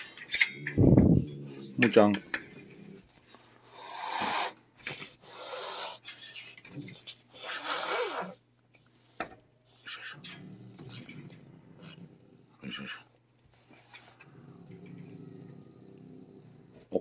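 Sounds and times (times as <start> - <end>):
cat hissing: 3.6 - 6.1, 7.3 - 8.4.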